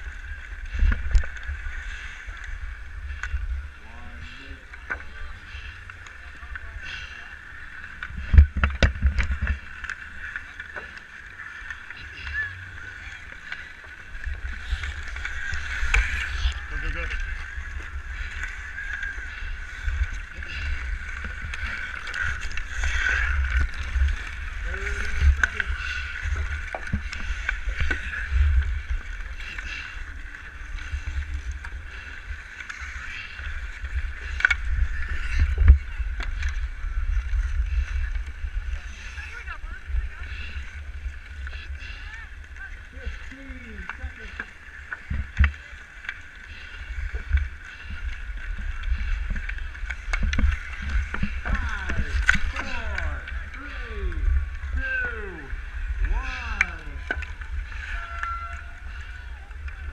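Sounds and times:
skate blades scraping ice: 0:04.6 - 0:59.9
hockey sticks and puck clacking: 0:07.4 - 0:38.8, 0:43.1 - 0:59.8
wind rumble on microphone: 0:14.1 - 0:44.3.

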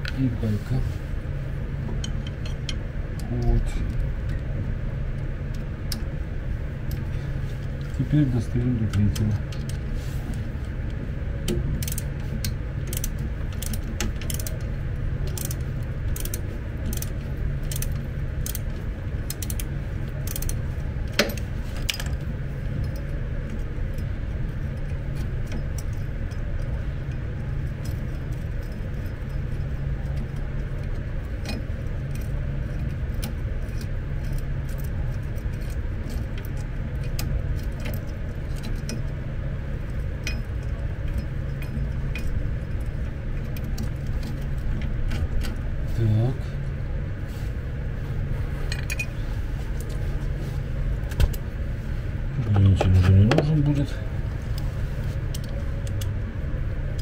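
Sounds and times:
low hum: 0:00.0 - 0:57.0
ratchet wrench clicking: 0:11.5 - 0:14.6, 0:15.3 - 0:18.7, 0:19.3 - 0:20.6.

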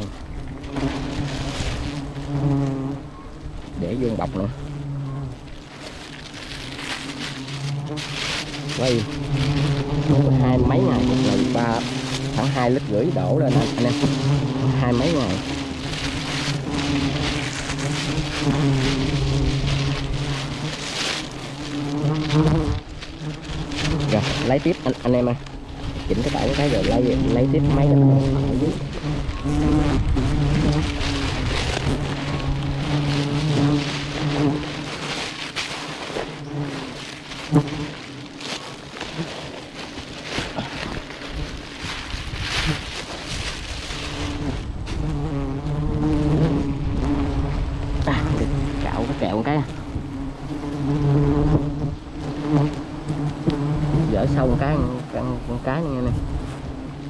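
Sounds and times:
low droning hum: 0:00.0 - 0:39.0
handling noise: 0:00.0 - 0:45.4
plastic bag rustling: 0:00.0 - 0:55.5
bees buzzing: 0:00.0 - 0:57.0.

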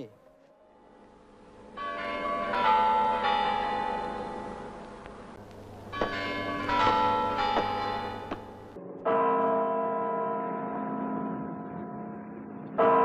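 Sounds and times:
clock bells chiming: 0:01.8 - 0:04.8, 0:05.8 - 0:12.1.

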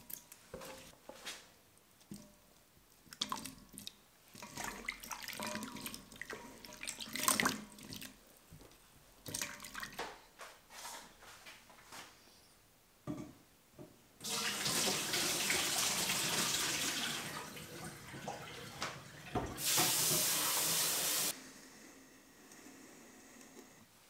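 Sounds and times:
tap water splashing into sink: 0:14.2 - 0:20.9.

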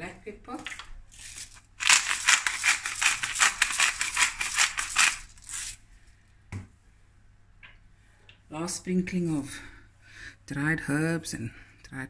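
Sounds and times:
pepper mill grinding clicks: 0:01.2 - 0:05.8.

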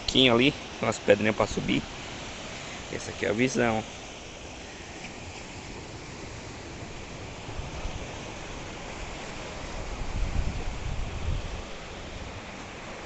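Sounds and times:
surf: 0:00.0 - 0:13.0
wind rumbling on microphone: 0:05.0 - 0:13.0.

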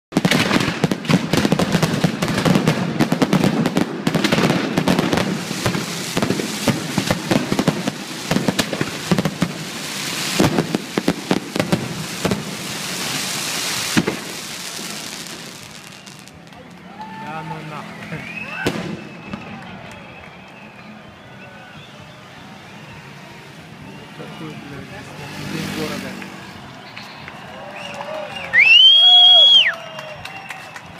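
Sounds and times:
fireworks bangs and crackles: 0:00.1 - 0:27.4.

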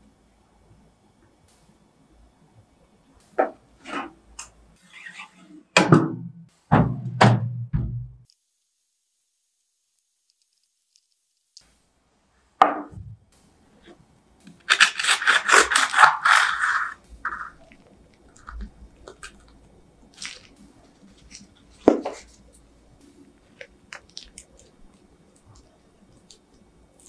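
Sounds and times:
knife sawing through crisp crust: 0:14.7 - 0:17.6.

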